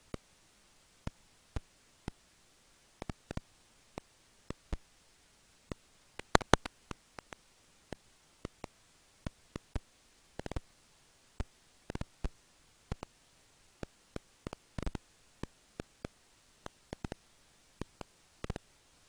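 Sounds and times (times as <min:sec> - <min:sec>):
bats clicking: 0:03.0 - 0:04.9, 0:05.7 - 0:10.7, 0:11.4 - 0:18.7.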